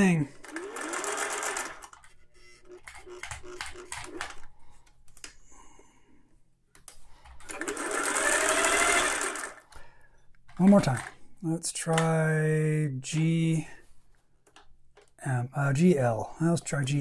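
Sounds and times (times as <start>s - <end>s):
sewing machine stitching: 0.4s - 2.0s, 7.4s - 9.7s.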